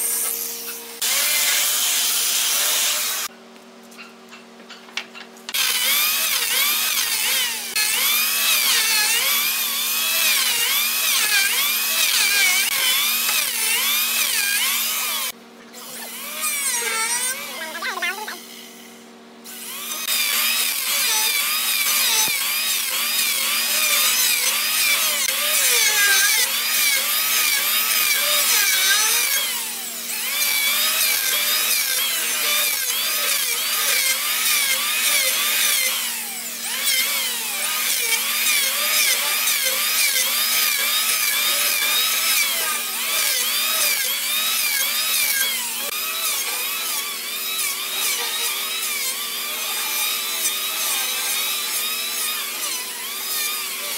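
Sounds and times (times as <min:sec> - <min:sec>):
electric planer shaving wood: 0:00.0 - 0:03.3, 0:05.5 - 0:18.9, 0:19.5 - 0:53.9.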